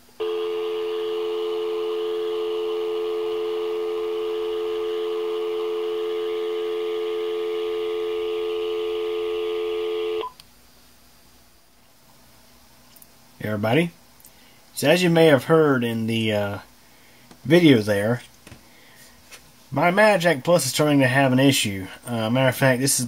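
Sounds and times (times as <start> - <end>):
telephone dial tone: 0.2 - 10.4.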